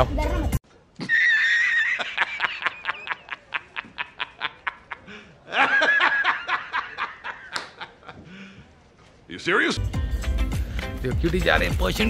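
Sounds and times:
man laughing hard: 1.0 - 8.3.

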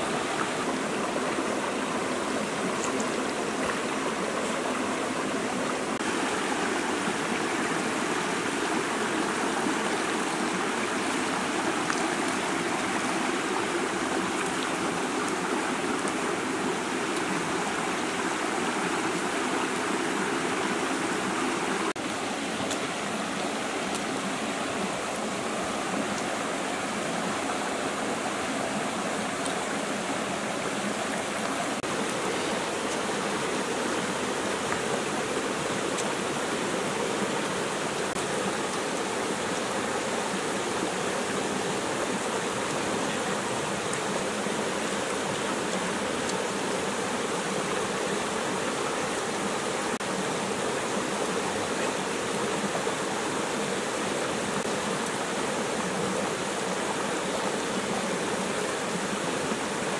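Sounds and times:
water rushing over stones: 0.0 - 59.9.

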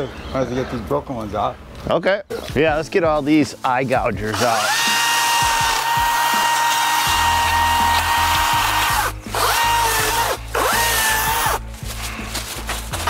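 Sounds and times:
electric chainsaw whining: 4.3 - 11.6.

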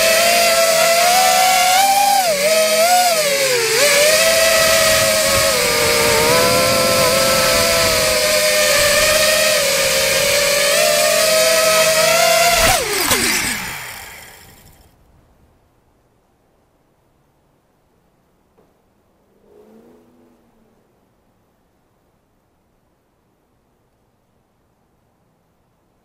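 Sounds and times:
model airplane motor buzzing: 0.0 - 14.9.

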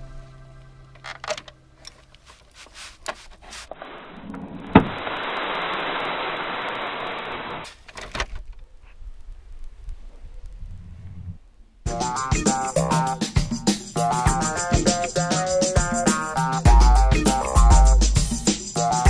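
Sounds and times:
sand and gravel sliding out: 2.0 - 7.9.

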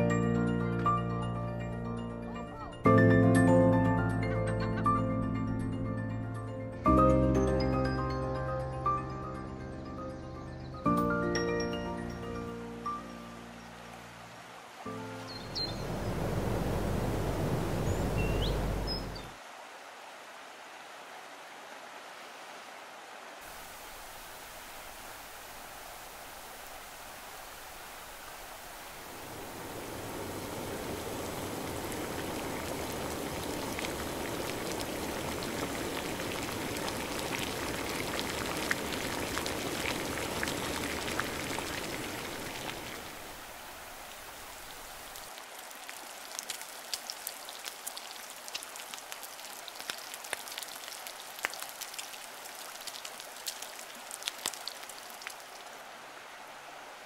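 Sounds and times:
rushing river water: 12.6 - 57.0
light ticks and drips: 30.9 - 43.1, 44.0 - 55.8.

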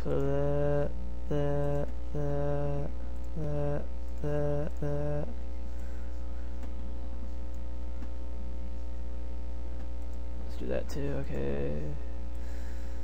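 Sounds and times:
man humming: 0.0 - 5.4
low electrical hum: 0.0 - 13.0.

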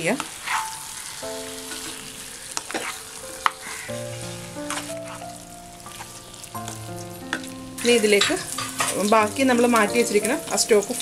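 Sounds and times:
meat sizzling in a pan: 0.0 - 11.0
spatula scraping through meat: 0.4 - 0.8, 2.7 - 3.0.

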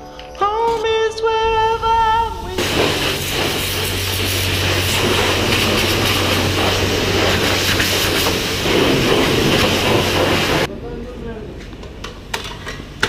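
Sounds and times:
water spray hissing: 2.4 - 10.7.

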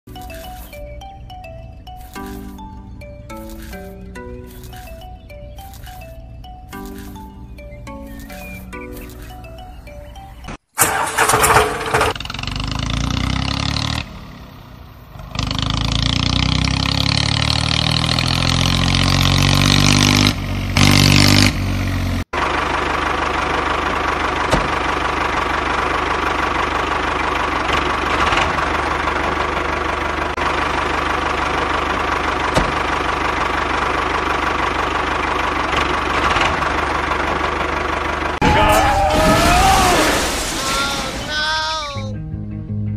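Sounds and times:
engine starting and revving: 10.7 - 41.2.

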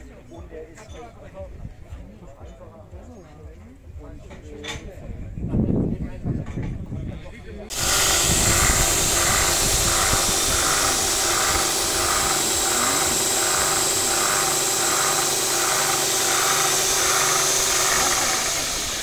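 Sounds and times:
belt grinder motor humming: 7.7 - 19.0.

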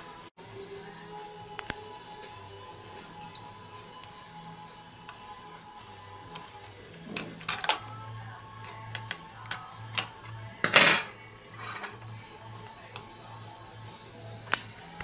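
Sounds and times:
mechanism clatter and rattle: 6.4 - 7.9.

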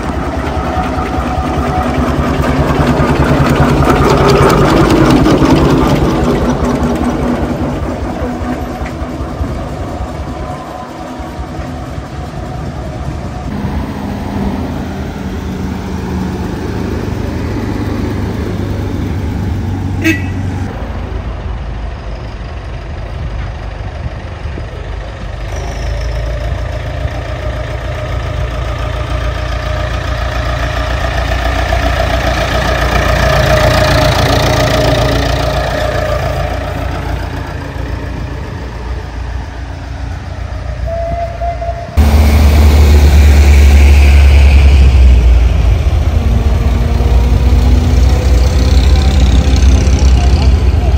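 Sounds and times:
steam traction engine rumbling: 0.0 - 50.9
tractor engine passing: 0.0 - 50.9.

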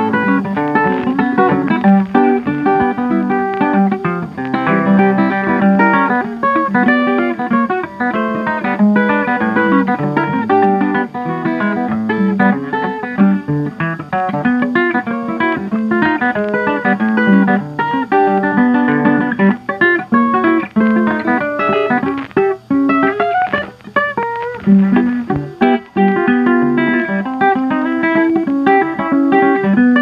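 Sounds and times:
plucked guitar music: 0.0 - 30.0.

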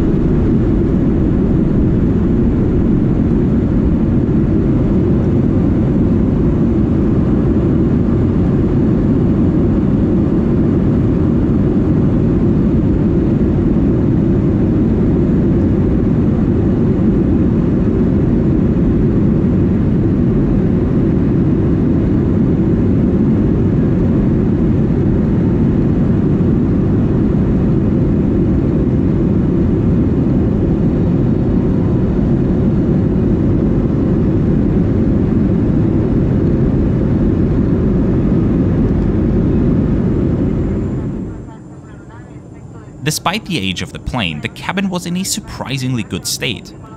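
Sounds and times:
jet engines roaring in cabin: 0.0 - 42.7.

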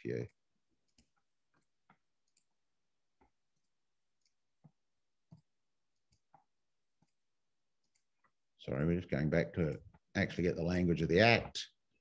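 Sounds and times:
computer mouse clicks: 0.8 - 2.6, 7.8 - 8.4.

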